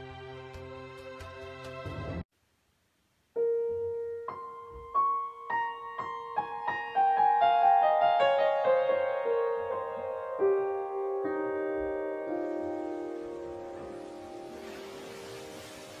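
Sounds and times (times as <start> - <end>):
piano music: 3.4 - 16.0.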